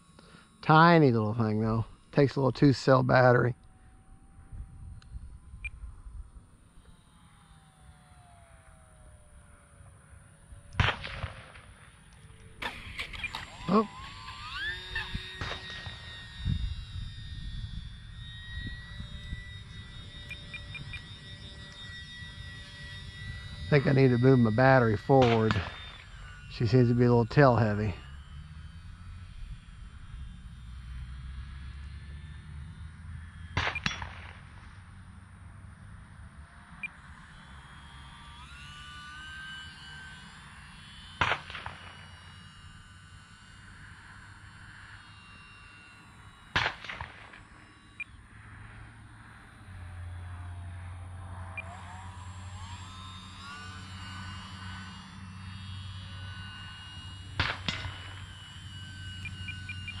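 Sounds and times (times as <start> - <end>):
model plane motor whine: 0.0 - 60.0
wind rumbling on microphone: 4.2 - 6.6, 16.2 - 19.6.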